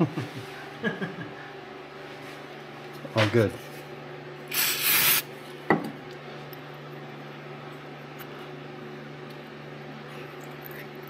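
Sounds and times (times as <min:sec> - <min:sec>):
low mechanical hum: 0:00.0 - 0:11.0
short hiss: 0:04.5 - 0:05.2.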